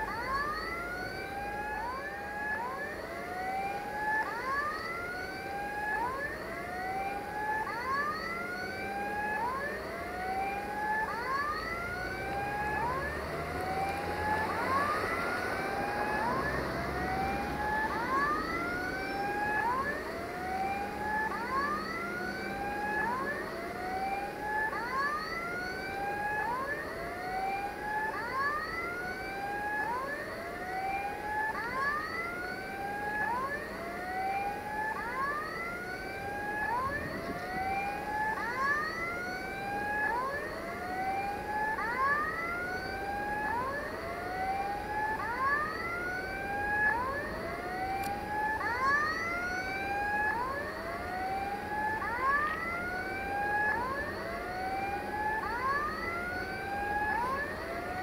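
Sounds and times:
electronic siren wailing: 0.0 - 58.0
engine running low: 11.7 - 24.9.

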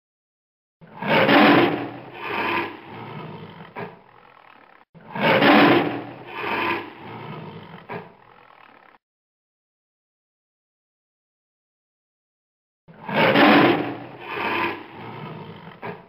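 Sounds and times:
tiger growling: 0.8 - 9.0, 12.9 - 16.0.

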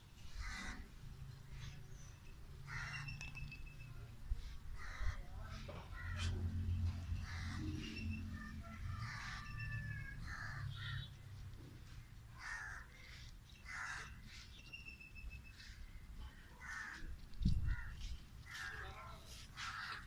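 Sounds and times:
crows cawing: 0.3 - 0.9, 2.6 - 3.2, 4.8 - 11.2, 12.4 - 14.4, 15.6 - 20.0.

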